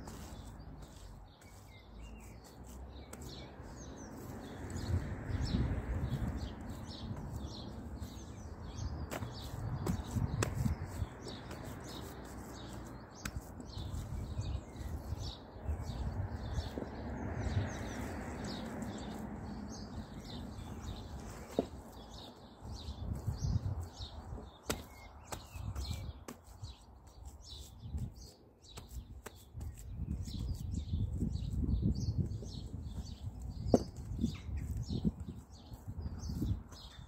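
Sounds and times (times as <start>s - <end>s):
hands scraping soil: 0.0s - 37.0s
small birds chirping: 0.0s - 37.0s.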